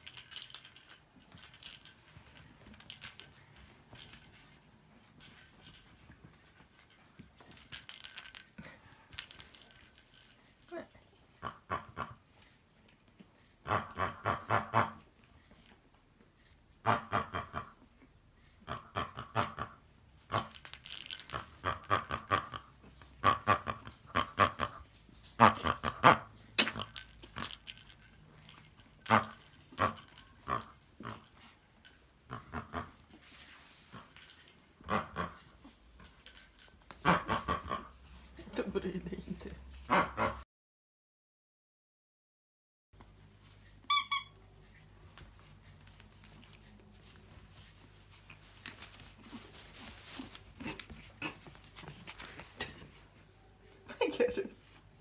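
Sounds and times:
rustling and scuffling: 0.0 - 10.7, 26.9 - 37.1, 44.9 - 53.4.

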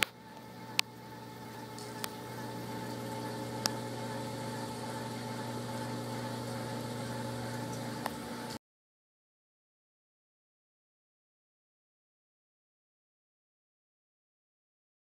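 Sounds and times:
aquarium pump humming: 0.0 - 8.6.

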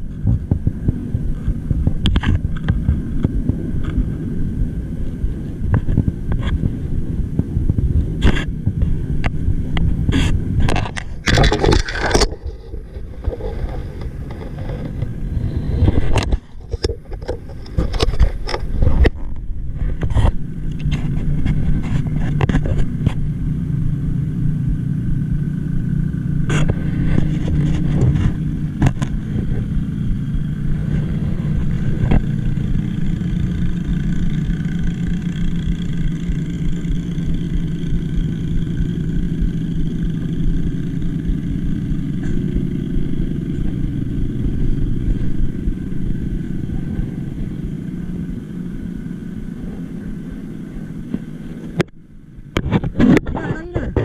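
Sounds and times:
low motor drone: 0.0 - 54.0
knocks and scrapes on boat hull: 10.1 - 23.2.

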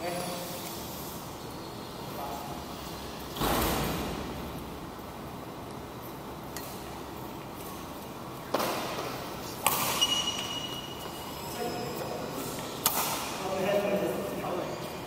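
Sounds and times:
racket hitting shuttlecock: 8.5 - 10.6, 12.8 - 13.4
high squeak: 9.9 - 12.6.

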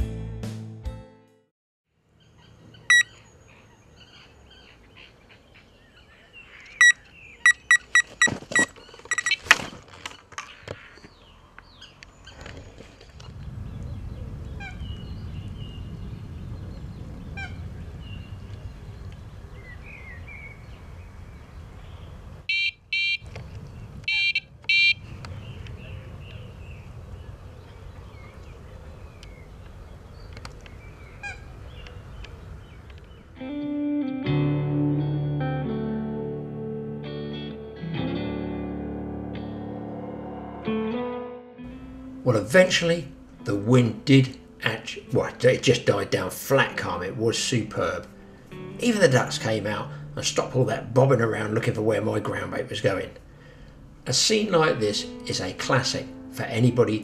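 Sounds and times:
fishing bite alarm beeps: 6.8 - 9.4, 22.5 - 23.2, 24.1 - 25.0.

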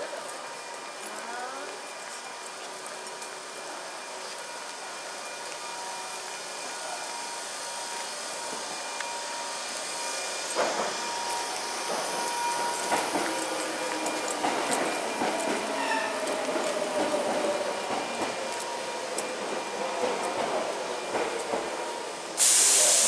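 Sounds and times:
train rushing past: 3.2 - 23.0
train wheels clattering over rail joints: 10.4 - 21.9.

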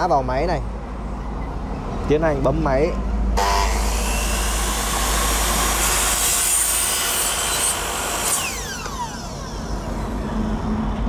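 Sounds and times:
saw blade spinning down: 3.4 - 10.6
miter saw cutting plastic: 3.4 - 10.7.

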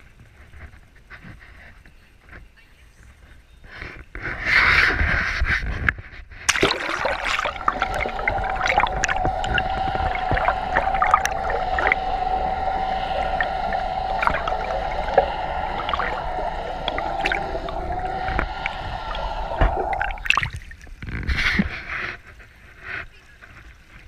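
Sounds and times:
churning water: 6.5 - 20.9
underwater whine with overtones: 6.5 - 21.0.

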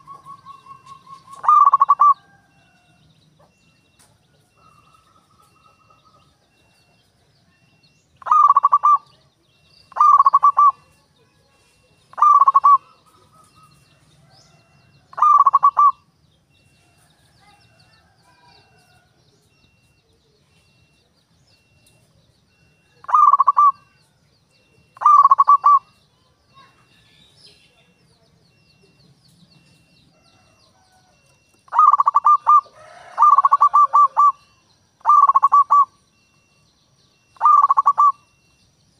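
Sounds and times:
dove cooing: 0.0 - 3.0, 7.6 - 11.1, 11.8 - 16.1, 22.5 - 26.7, 29.8 - 36.5, 37.2 - 38.4.

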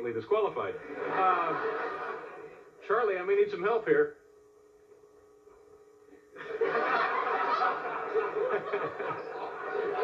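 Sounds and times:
audience laughing: 0.8 - 2.7, 6.4 - 10.0.

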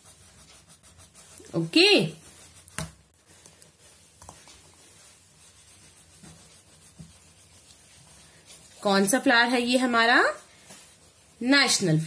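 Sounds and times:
crayon scratching on paper: 0.0 - 3.0, 3.7 - 10.1.

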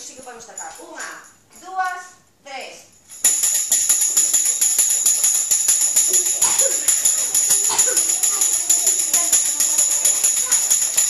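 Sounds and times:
tambourine beaten fast: 3.2 - 11.0.

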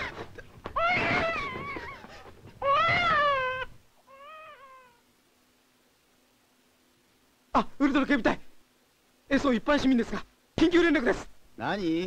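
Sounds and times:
cat meowing: 0.8 - 2.0, 2.6 - 5.0.

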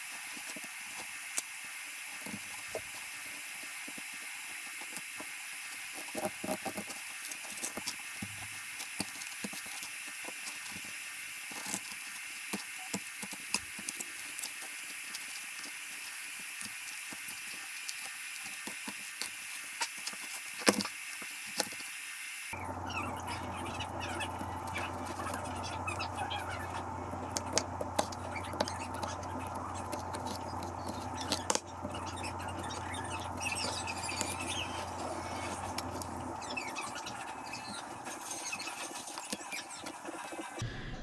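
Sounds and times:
steady hiss: 0.0 - 41.0
foil crinkling: 22.6 - 40.6.

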